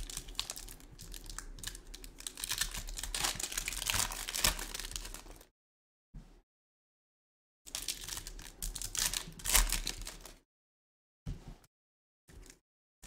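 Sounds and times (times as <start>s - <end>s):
foil pack crinkling: 0.0s - 5.4s, 7.7s - 10.4s.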